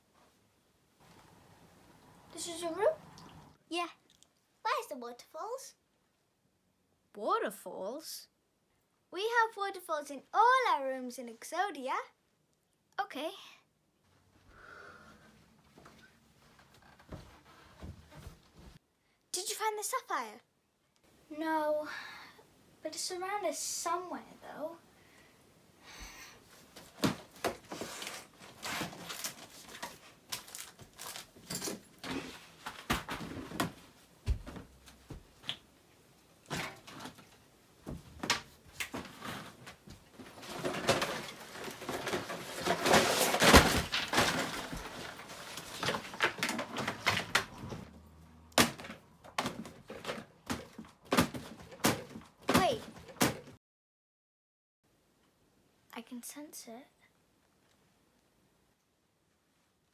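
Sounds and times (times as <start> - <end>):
rustling: 26.5 - 48.0
knocks and bumps of handled objects: 26.7 - 35.7, 36.4 - 53.6.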